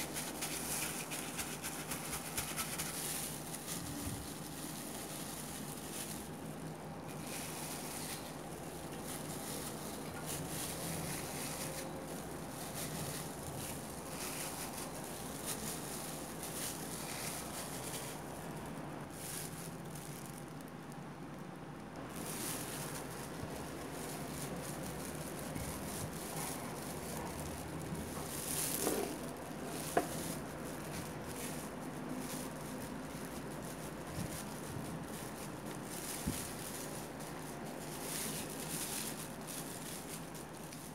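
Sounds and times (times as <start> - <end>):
spatula scraping mayonnaise: 0.0 - 6.3
steady background hiss: 0.0 - 40.9.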